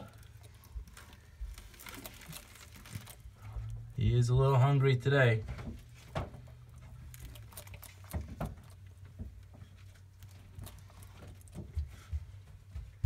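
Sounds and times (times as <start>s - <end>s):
lizard feeding clicks and scratches: 0.0s - 3.6s, 5.7s - 12.2s.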